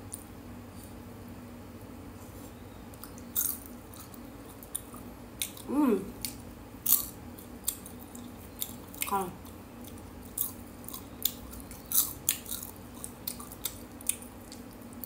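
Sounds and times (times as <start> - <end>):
popcorn chewing crunches: 3.0 - 15.0
person humming: 5.7 - 6.2.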